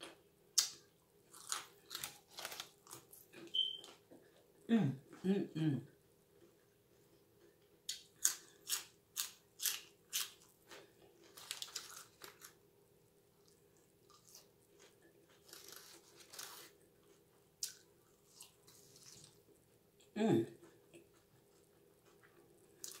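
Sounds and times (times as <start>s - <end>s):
celery crunching: 0.6s - 4.0s, 7.9s - 12.6s, 13.4s - 19.4s, 22.8s - 23.0s.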